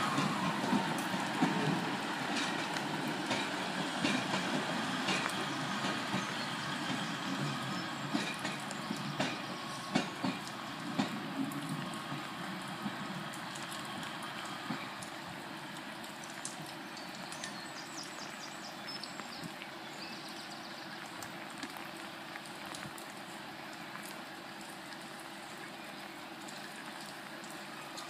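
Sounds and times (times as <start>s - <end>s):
wheels clicking over rail joints: 0.0s - 18.7s
diesel train rumbling away: 0.0s - 19.1s.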